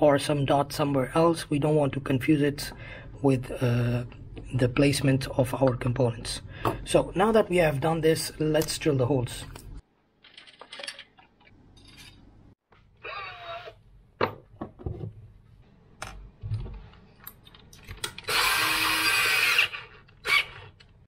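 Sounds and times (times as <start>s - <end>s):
drill bits clicking: 18.0s - 21.0s
power drill whirring: 18.2s - 20.8s.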